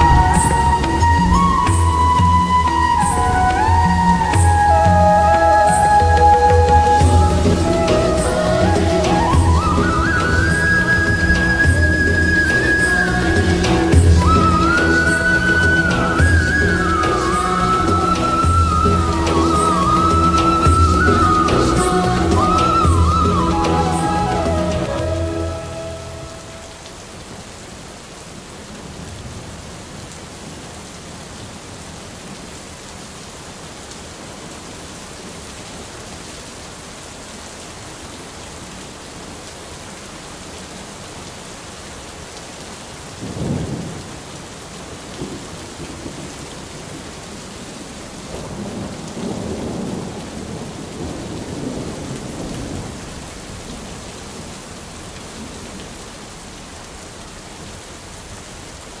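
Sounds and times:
rolling thunder rumble: 0.0 - 25.4, 48.3 - 53.9
heavy rain splashing: 0.0 - 59.0.

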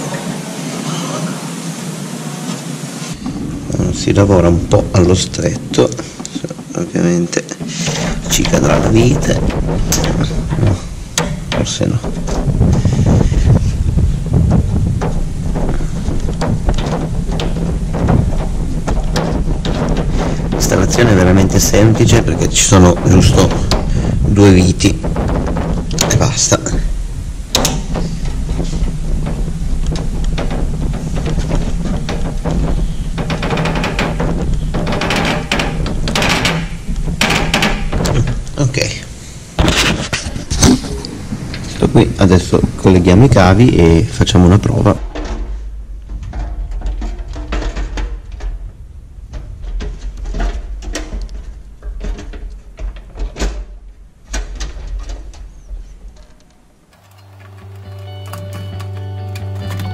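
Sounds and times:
low rumble: 3.0 - 56.9
hands clicking plastic casing: 57.2 - 59.9
music: 57.2 - 59.9.

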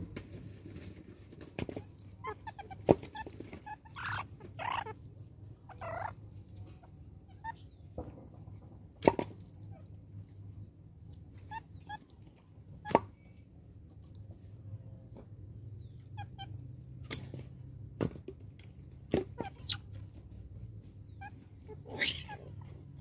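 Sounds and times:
mongooses chirping and chattering: 1.7 - 6.2, 6.8 - 7.9, 19.3 - 19.9, 21.0 - 23.0.

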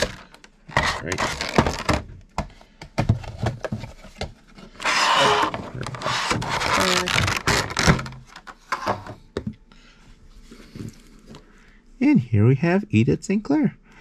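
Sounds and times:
packaging rubbing and scraping: 0.0 - 2.0, 3.3 - 8.5
plastic crinkling: 4.8 - 8.5.

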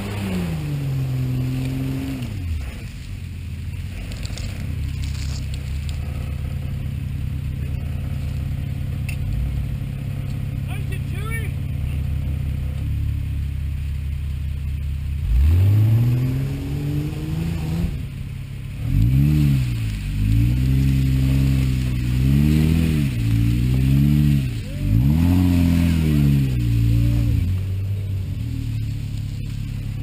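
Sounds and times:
car engine revving: 0.0 - 30.0.

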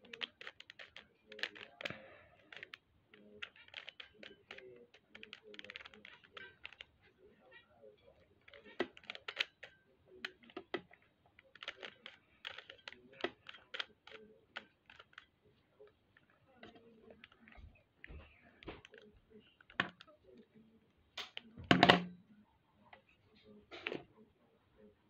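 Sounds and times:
puzzle cube plastic clicks: 0.0 - 7.0, 8.4 - 15.4, 16.6 - 17.6, 18.6 - 20.1.

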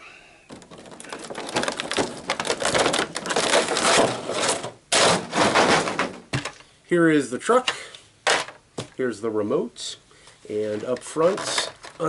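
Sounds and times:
plastic packaging crackling: 0.5 - 6.6, 10.8 - 12.0.

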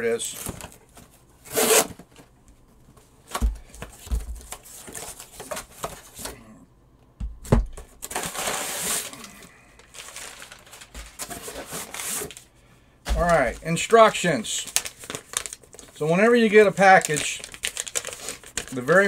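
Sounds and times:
packing paper crinkling: 8.0 - 12.5, 13.2 - 19.0.

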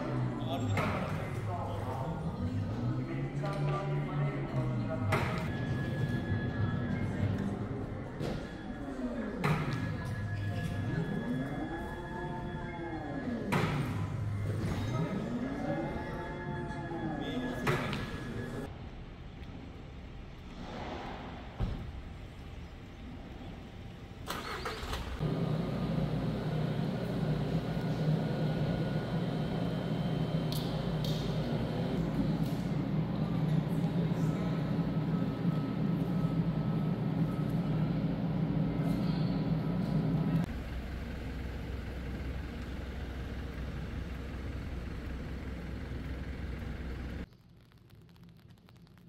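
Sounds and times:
street vehicle engine rumble: 20.5 - 47.3
low machine hum: 25.2 - 49.0.

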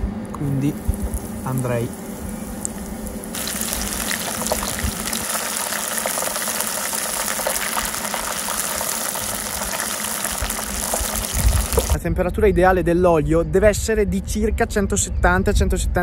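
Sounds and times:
food deep-frying in oil: 0.4 - 12.0.

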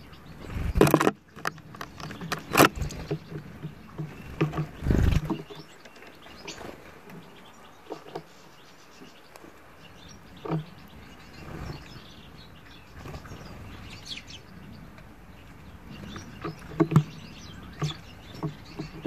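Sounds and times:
birds pecking seeds at feeder: 0.4 - 19.0
bird wings fluttering: 4.2 - 5.6.

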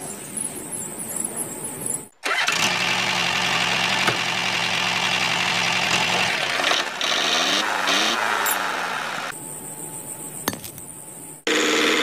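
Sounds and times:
engine running: 2.2 - 9.4.

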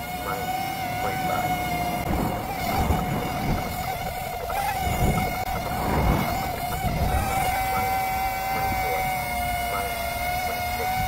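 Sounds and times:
quadcopter buzzing whine: 0.0 - 11.0
uneven low rumble: 2.0 - 7.7.

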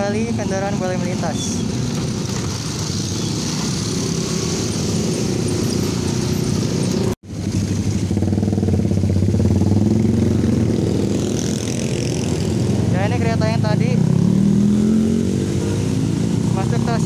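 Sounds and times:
motor scooter engines: 0.0 - 17.0.

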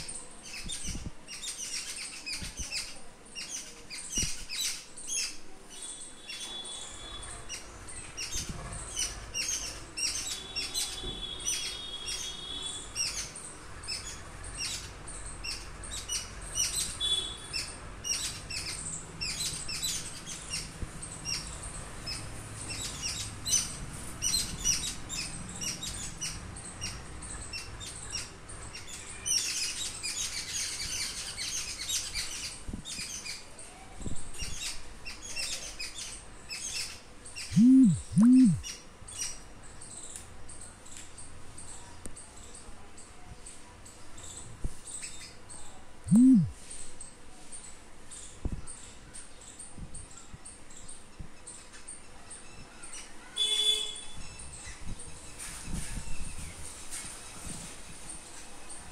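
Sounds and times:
small birds chirping: 0.0 - 58.9
loud low bird calls: 37.4 - 38.8, 46.1 - 46.5.

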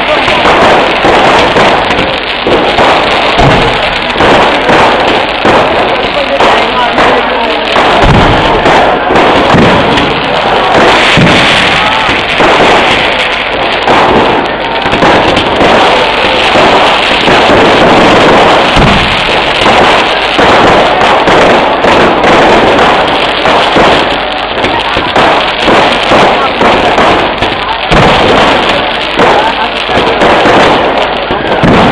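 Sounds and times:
deep firework booms: 0.0 - 31.9
firecrackers crackling and banging: 0.0 - 31.9.

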